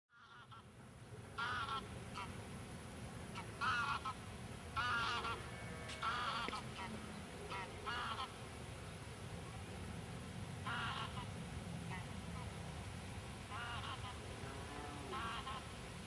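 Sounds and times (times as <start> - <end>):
geese honking: 0.2 - 0.7, 1.4 - 2.4, 3.3 - 4.2, 4.8 - 8.4, 10.6 - 11.3, 13.5 - 15.8.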